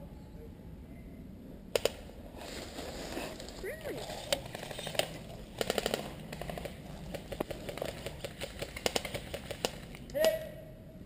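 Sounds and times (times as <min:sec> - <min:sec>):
airsoft rifle firing burst: 0:04.7 - 0:10.0.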